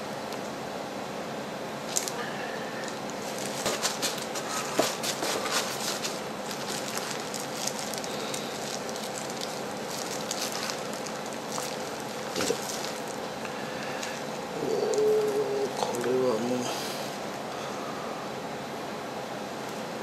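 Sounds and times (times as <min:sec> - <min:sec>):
plastic gloves crinkling: 0:01.9 - 0:02.2, 0:02.8 - 0:16.6
soil crackling and rustling: 0:02.8 - 0:16.6.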